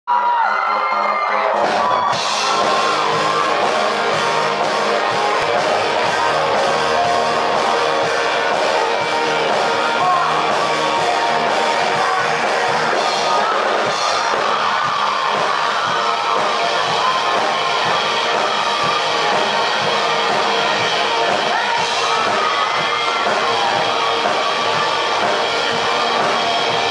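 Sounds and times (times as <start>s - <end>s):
live rock band playing: 1.2s - 26.9s
man singing: 5.4s - 14.8s.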